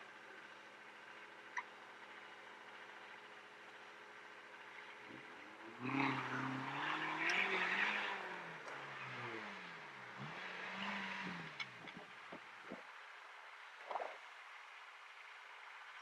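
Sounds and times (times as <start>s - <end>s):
engine revving: 5.0s - 12.8s.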